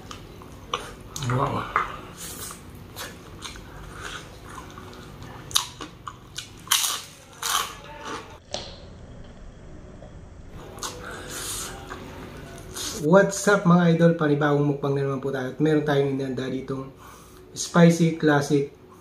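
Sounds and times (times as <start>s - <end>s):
man biting and chewing food: 0.0s - 8.6s, 10.6s - 13.0s.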